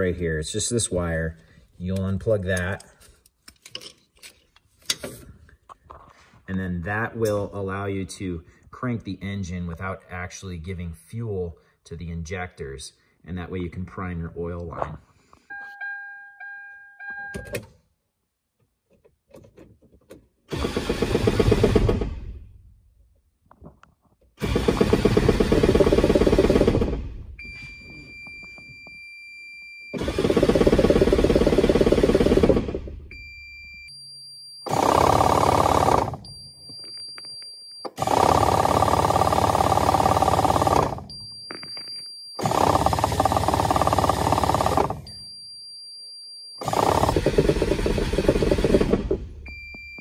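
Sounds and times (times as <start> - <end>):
diesel engine starter cranking: 30.0 - 33.0, 34.7 - 36.2, 46.6 - 49.4
electronic warning beep: 49.5 - 50.0.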